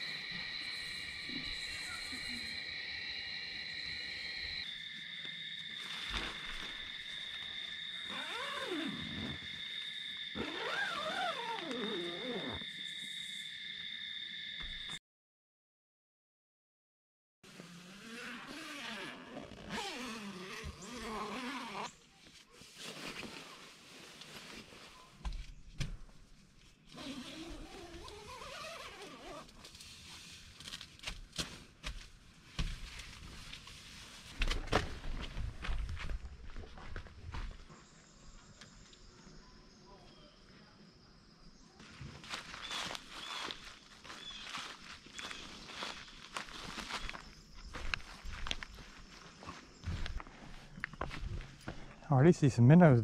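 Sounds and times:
insect chorus trilling: 0:00.0 - 0:15.0, 0:37.4 - 0:51.2.

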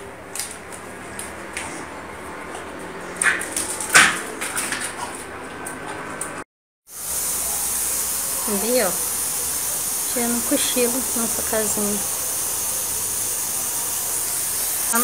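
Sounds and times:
steady hiss: 0:06.9 - 0:15.0.

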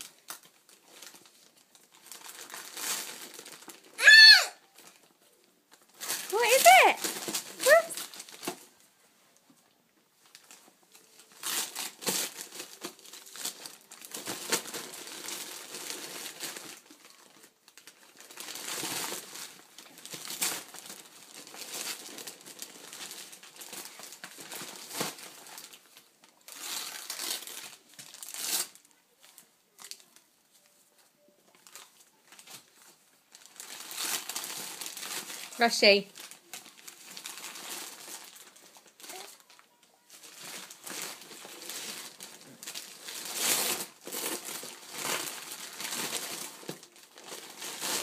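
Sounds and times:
wrapping paper crinkling: 0:00.0 - 0:08.9, 0:10.2 - 0:48.0.

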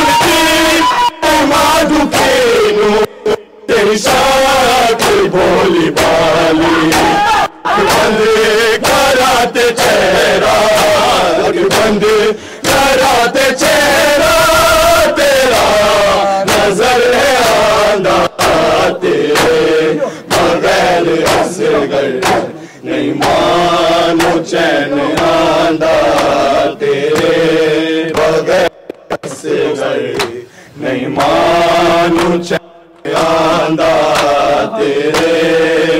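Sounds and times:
men chanting a lament: 0:00.0 - 0:35.9
hands slapping chests: 0:02.0 - 0:02.5, 0:04.1 - 0:08.2, 0:10.7 - 0:12.0, 0:12.6 - 0:13.8, 0:16.5 - 0:16.8, 0:18.3 - 0:23.5, 0:24.1 - 0:27.4, 0:28.1 - 0:29.5, 0:30.1 - 0:30.4, 0:31.2 - 0:31.5, 0:32.1 - 0:35.6.

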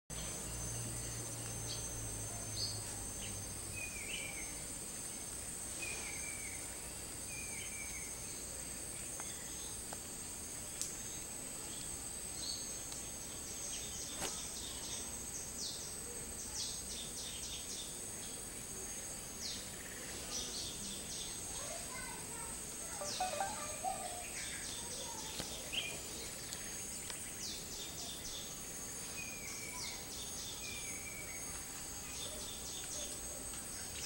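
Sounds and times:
high-pitched insect drone: 0:22.9 - 0:25.2
bird chirps: 0:23.0 - 0:26.0.

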